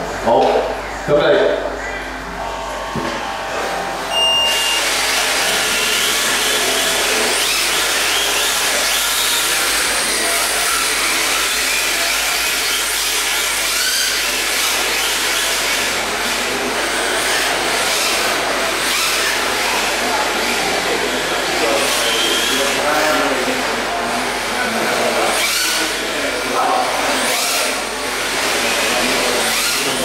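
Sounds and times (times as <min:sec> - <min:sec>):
rc car motors whining: 0:01.8 - 0:30.0
short steady beep: 0:04.1 - 0:05.0.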